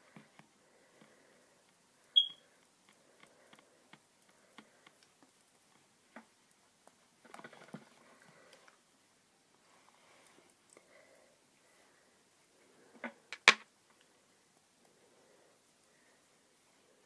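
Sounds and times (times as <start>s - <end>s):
short high-pitched beep: 2.2s - 2.4s.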